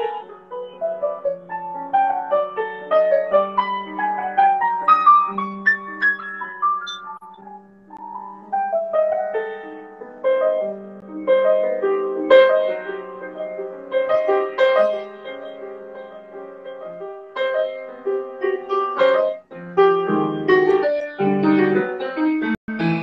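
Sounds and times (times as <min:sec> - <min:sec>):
solo piano improvisation: 0:00.0 - 0:23.0.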